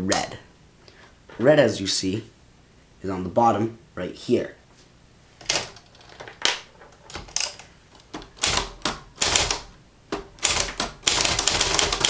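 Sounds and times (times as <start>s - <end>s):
typewriter keystroke clacks: 7.1s - 12.0s.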